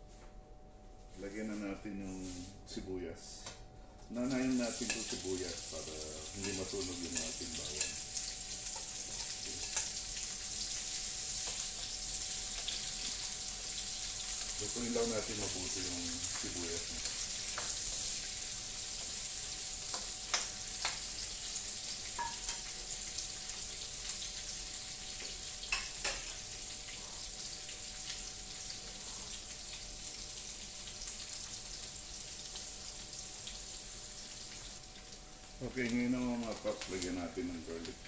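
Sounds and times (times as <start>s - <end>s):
onions sizzling in oil: 4.2s - 38.0s.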